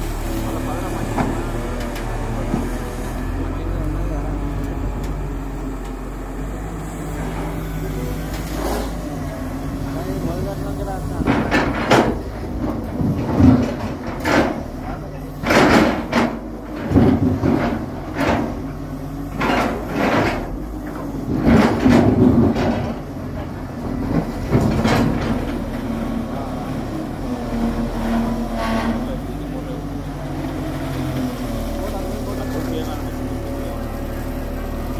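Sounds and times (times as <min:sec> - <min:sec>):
excavator diesel engine running: 0:00.0 - 0:34.9
clanks and scrapes: 0:11.2 - 0:14.8, 0:19.3 - 0:25.8, 0:28.0 - 0:29.3.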